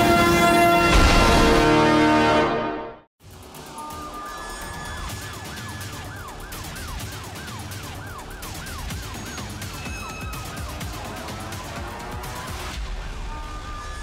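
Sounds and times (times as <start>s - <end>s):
siren wailing: 3.6s - 14.0s.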